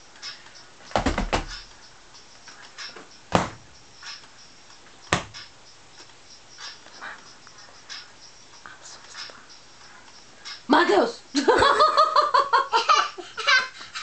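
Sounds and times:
hard knocks on hard surface: 1.0 - 1.6, 3.3 - 3.6, 5.1 - 5.5.

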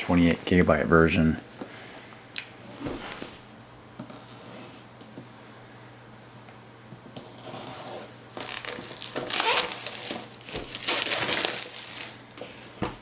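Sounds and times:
plastic shrink-wrap crinkling: 8.4 - 12.6.

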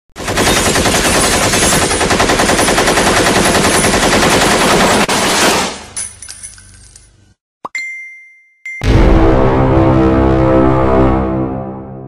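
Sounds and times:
rapid automatic gunfire: 0.2 - 5.8.

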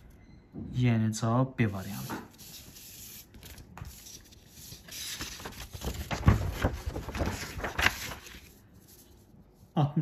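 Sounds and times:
book pages turning: 1.8 - 9.6.

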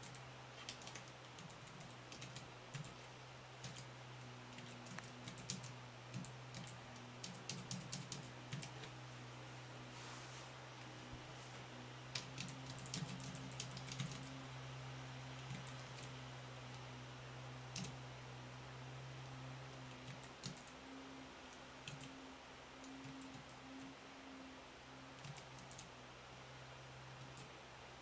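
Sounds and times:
keyboard keys clicking: 0.0 - 3.0, 4.5 - 8.9, 12.1 - 14.3, 19.9 - 20.7, 21.8 - 22.2, 25.2 - 25.9
steady low hum: 0.0 - 28.0.

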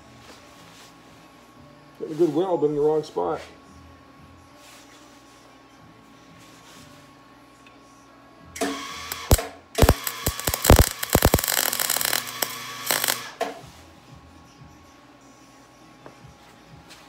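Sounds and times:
welding arc crackling: 9.1 - 13.3.

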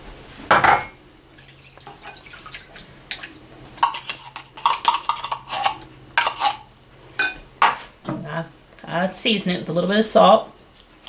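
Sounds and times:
hot water trickling into bowl: 1.3 - 5.8.

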